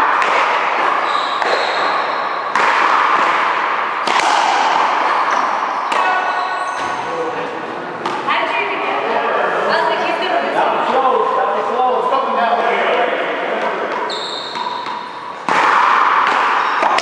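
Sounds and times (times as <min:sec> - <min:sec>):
racquetball hitting racquets and wall: 0:00.0 - 0:08.5, 0:13.2 - 0:17.0
shoe squeaks: 0:01.0 - 0:02.5, 0:06.1 - 0:07.3, 0:14.0 - 0:15.4.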